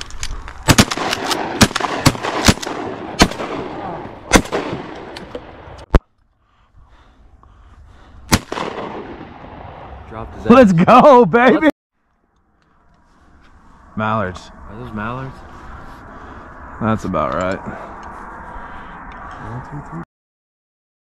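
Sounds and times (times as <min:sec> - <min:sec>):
shotgun shots: 0:00.6 - 0:05.7, 0:08.3 - 0:09.8.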